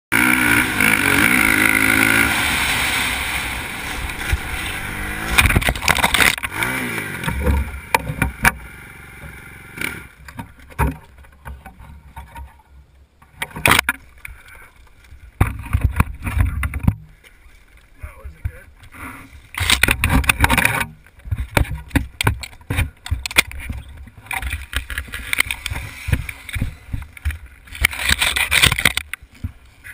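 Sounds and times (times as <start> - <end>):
quad engine revving: 0.1 - 10.2
knocks and scrapes of branches: 0.1 - 29.9
crash into brush: 1.3 - 8.3.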